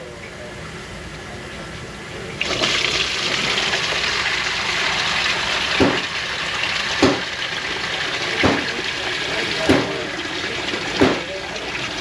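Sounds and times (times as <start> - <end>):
water pouring: 2.4 - 12.0.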